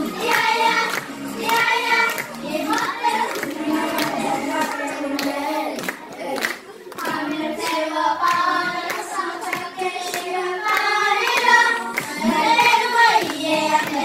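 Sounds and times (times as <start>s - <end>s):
children singing pop song: 0.0s - 14.0s
hand claps: 0.2s - 14.0s.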